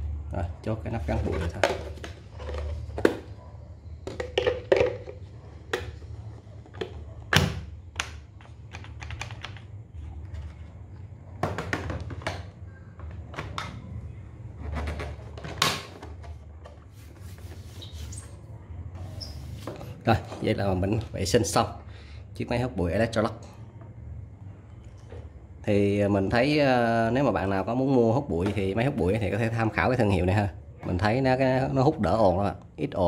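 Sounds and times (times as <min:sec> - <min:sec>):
plastic parts clicking: 0:08.0 - 0:09.7.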